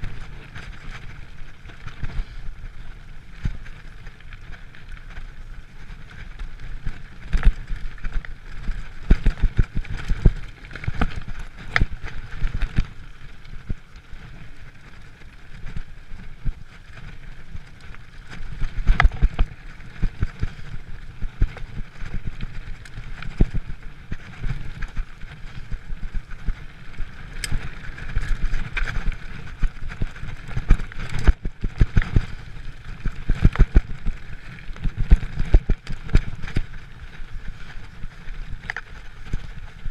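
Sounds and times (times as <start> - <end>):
bike tyres rumbling on dirt: 0.0 - 39.9
wind on microphone: 18.4 - 39.9.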